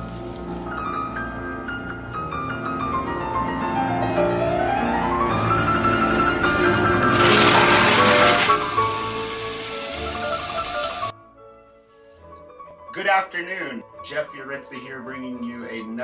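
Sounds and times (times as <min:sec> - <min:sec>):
shower water running: 0:00.0 - 0:00.7, 0:07.1 - 0:11.1
classical piano music: 0:02.3 - 0:11.1.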